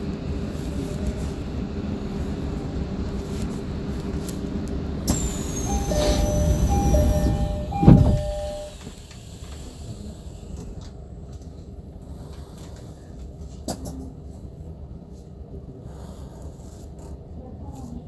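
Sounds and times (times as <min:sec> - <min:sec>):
train humming: 0:00.0 - 0:12.1
sliding doors shutting: 0:05.0 - 0:09.9
high falling whine: 0:05.1 - 0:08.8
two-note door chime: 0:05.6 - 0:08.8.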